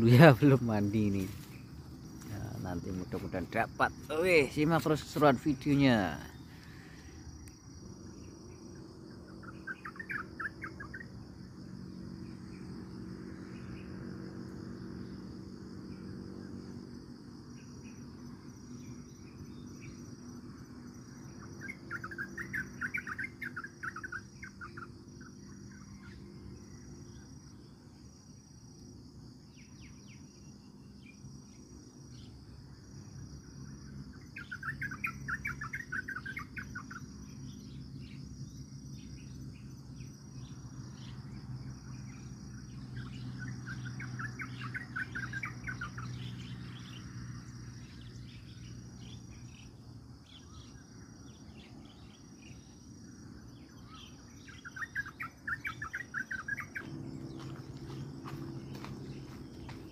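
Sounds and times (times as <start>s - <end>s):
insects chirping: 0.0s - 59.9s
rapid bird calls: 9.3s - 11.1s, 21.3s - 26.2s, 34.1s - 38.2s, 42.1s - 47.1s, 53.6s - 59.9s.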